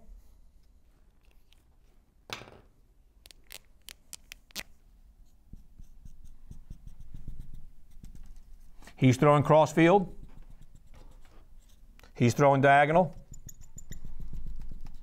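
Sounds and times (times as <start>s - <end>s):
marker scraping on whiteboard: 5.3s - 9.0s, 9.7s - 12.4s, 13.0s - 15.0s
marker ticking on whiteboard: 13.1s - 15.0s.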